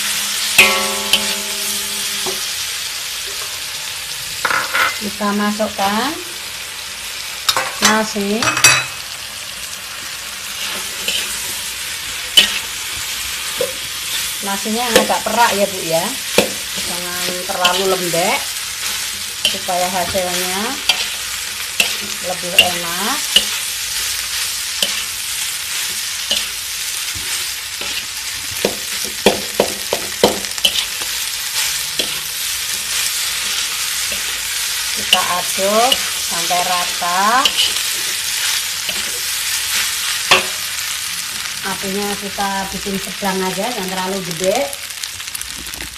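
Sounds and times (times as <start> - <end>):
food sizzling in a wok: 0.0 - 45.9
spatula clinking against wok: 0.6 - 2.5
metal spatula clanking on wok: 0.6 - 2.6, 7.5 - 9.1, 12.3 - 12.6, 19.4 - 20.2, 35.0 - 37.8, 40.3 - 40.6.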